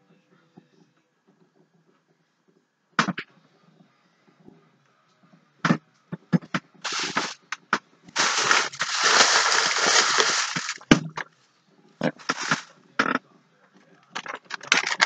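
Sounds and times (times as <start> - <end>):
wrapping crinkling and crackling: 6.9 - 7.6, 8.2 - 11.0, 12.2 - 12.7, 14.4 - 15.0.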